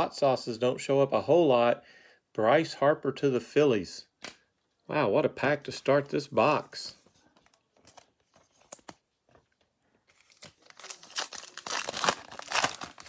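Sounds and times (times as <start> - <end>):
foil wrapper tearing and crinkling: 10.1 - 13.0.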